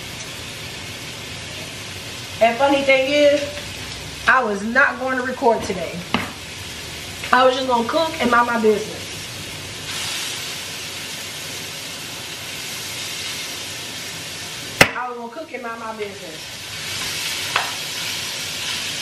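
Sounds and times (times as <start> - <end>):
food sizzling in a pan: 0.0 - 19.0.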